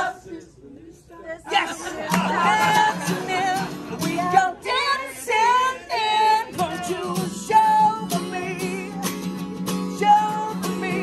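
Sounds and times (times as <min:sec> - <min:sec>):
man singing: 0:01.5 - 0:11.0
acoustic guitars strumming: 0:01.8 - 0:05.0, 0:05.6 - 0:11.0.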